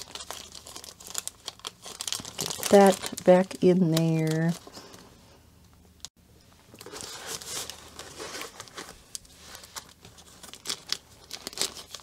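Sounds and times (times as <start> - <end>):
plastic packaging crinkling: 0.0 - 5.1, 6.6 - 12.0.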